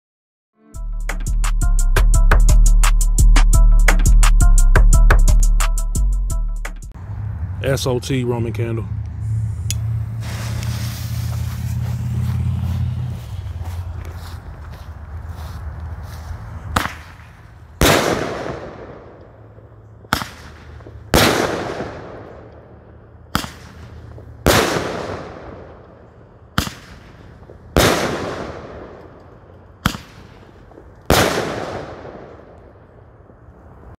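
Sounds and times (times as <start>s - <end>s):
firework star bursting bang: 10.2s - 11.6s
firework launch pops: 10.2s - 11.7s, 16.7s - 17.2s, 20.1s - 22.1s.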